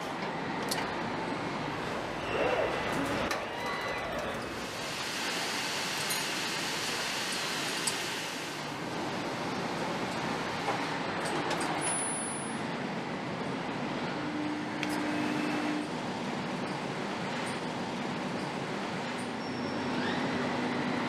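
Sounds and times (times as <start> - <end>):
machinery noise: 1.5 - 7.8.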